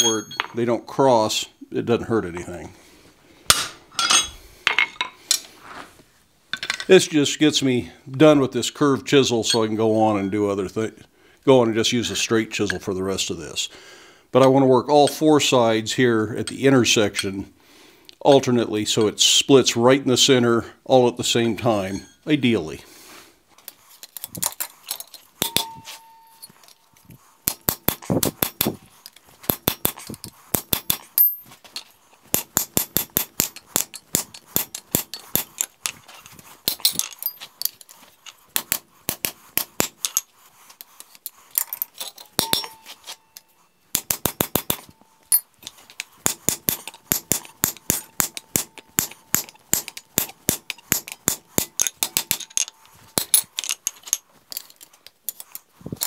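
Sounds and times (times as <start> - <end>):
hammer striking chisel on steel: 0.0 - 0.6, 25.4 - 26.6, 42.2 - 45.5, 46.2 - 53.5
faint metallic ring: 25.4 - 27.0, 41.8 - 43.8.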